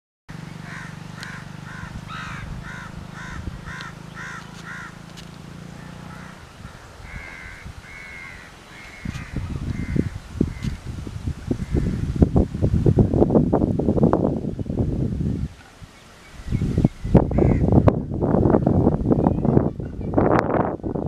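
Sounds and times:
wind buffeting microphone: 0.4 - 21.0
crow cawing: 0.6 - 5.1, 5.8 - 10.8, 17.3 - 17.7.

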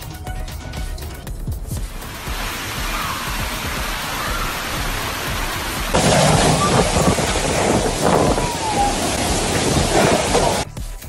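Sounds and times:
rushing floodwater: 1.9 - 10.7.

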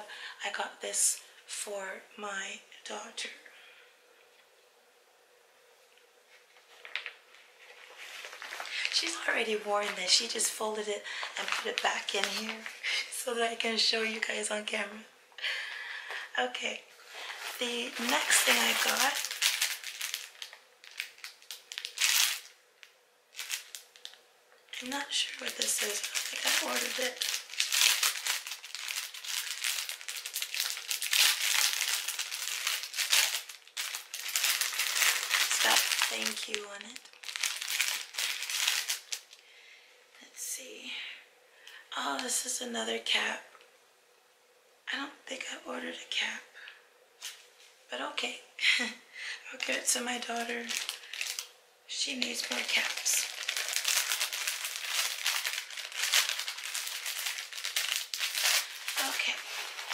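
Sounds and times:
plastic bag crinkling: 6.4 - 13.2, 17.0 - 39.4, 49.5 - 59.9.

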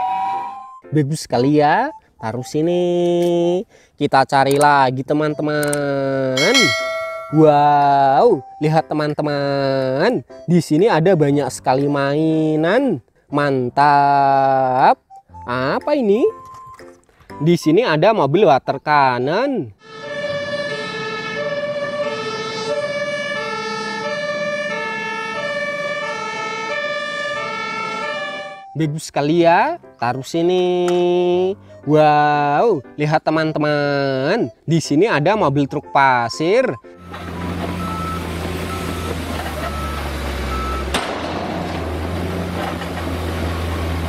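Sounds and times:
two-tone emergency siren: 0.0 - 0.9, 19.8 - 28.8, 36.9 - 41.0
diesel truck engine running: 37.0 - 44.0.

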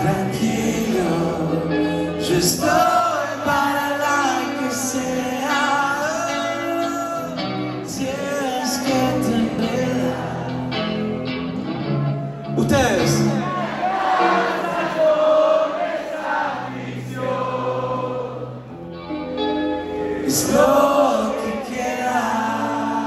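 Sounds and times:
man singing: 0.0 - 11.0, 12.6 - 13.4, 20.2 - 23.0
electric guitar: 0.0 - 14.8, 17.8 - 23.0
rock band playing live: 0.0 - 15.4, 16.6 - 23.0.

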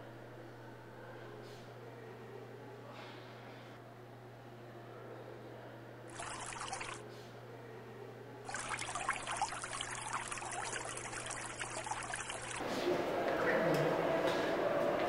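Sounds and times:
faucet water running: 6.1 - 7.0, 8.5 - 12.6
water splashing over hands: 6.1 - 7.0, 8.5 - 12.6.

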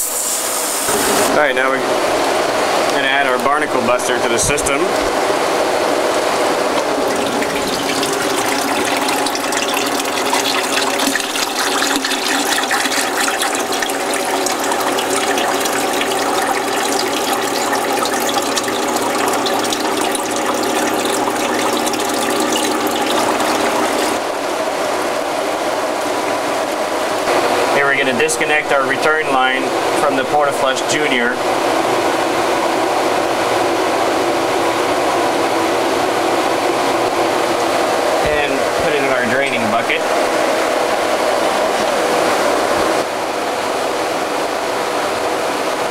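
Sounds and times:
pump humming: 0.0 - 45.9
water splashing into plastic bucket: 6.7 - 24.2.

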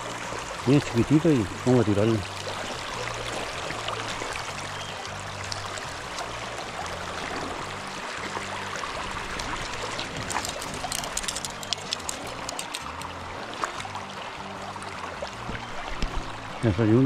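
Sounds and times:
river current rushing: 0.0 - 17.0
light sharp clicks: 10.2 - 13.1.

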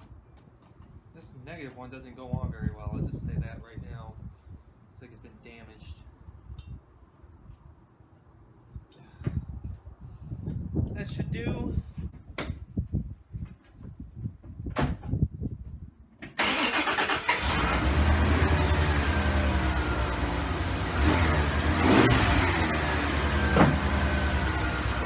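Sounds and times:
truck engine cranking and idling: 16.3 - 25.0.

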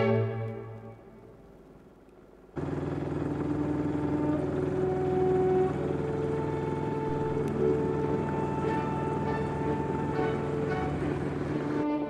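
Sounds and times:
orchestral music: 0.0 - 1.7, 2.7 - 12.0
boat motor humming: 0.0 - 12.0
water churning: 2.6 - 12.0.

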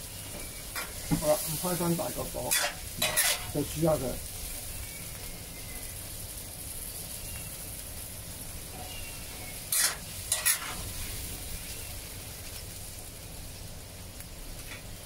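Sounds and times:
sauce hissing in a hot pan: 0.0 - 15.0
spatula scraping a wok: 2.4 - 3.6, 9.7 - 10.9.

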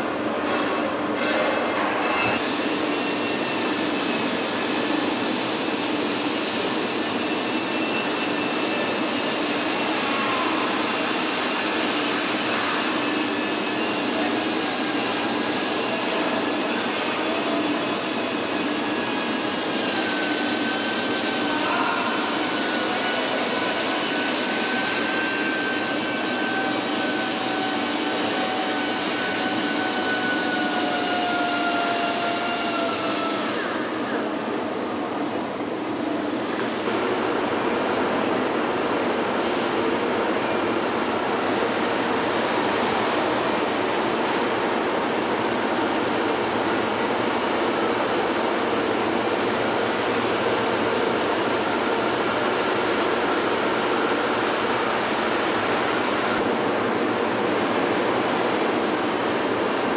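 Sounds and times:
factory machinery rush: 0.0 - 59.9.

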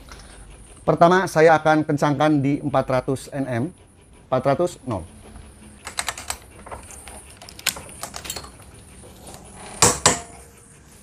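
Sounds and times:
metal clicks and rattles: 5.8 - 8.7.

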